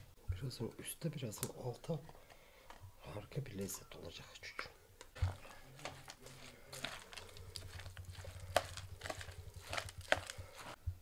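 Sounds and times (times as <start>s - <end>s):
spoon mixing wet filling: 5.2s - 10.8s.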